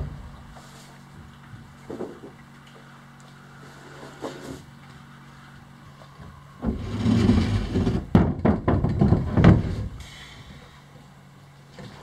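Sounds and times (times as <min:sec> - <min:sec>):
board scraping across wooden deck: 0:03.6 - 0:04.7, 0:06.6 - 0:10.0
board knocking: 0:07.8 - 0:09.8.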